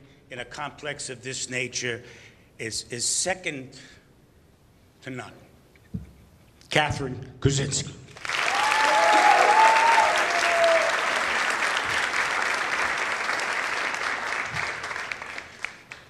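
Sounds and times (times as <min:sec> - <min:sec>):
audience applauding: 0:08.2 - 0:16.0
person cheering: 0:08.4 - 0:11.2.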